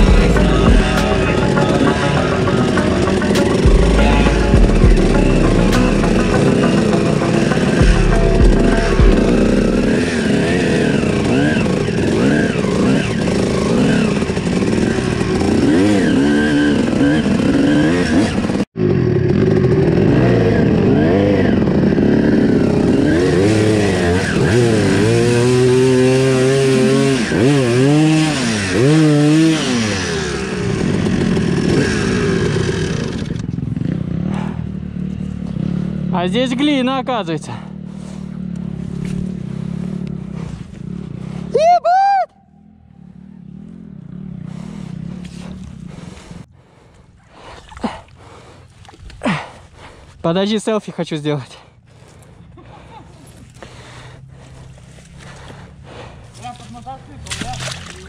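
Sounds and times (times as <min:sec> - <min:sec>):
dirt bike engine revving: 0:00.0 - 0:41.6, 0:42.4 - 0:46.9.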